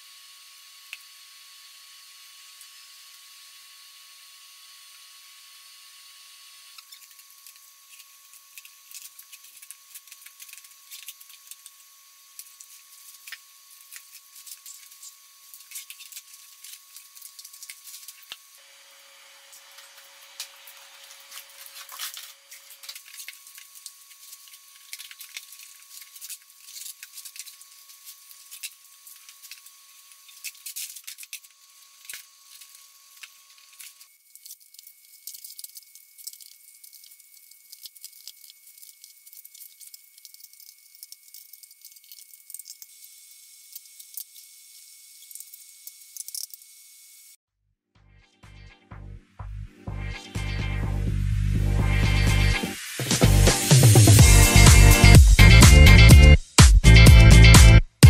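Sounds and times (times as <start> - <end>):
membrane crackling and tearing: 12.3 - 18.4, 21.0 - 42.7.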